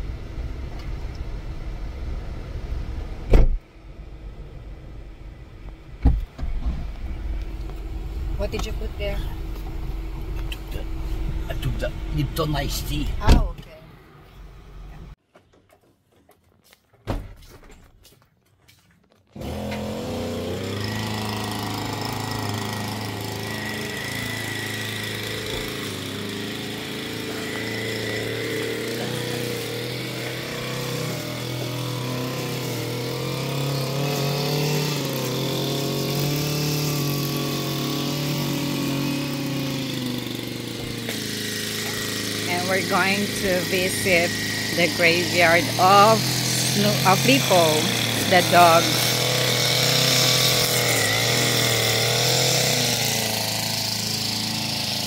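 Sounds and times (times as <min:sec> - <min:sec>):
car engine running: 0:00.0 - 0:15.2, 0:19.4 - 0:55.0
thump: 0:03.3 - 0:03.6, 0:06.0 - 0:06.8, 0:17.0 - 0:17.4.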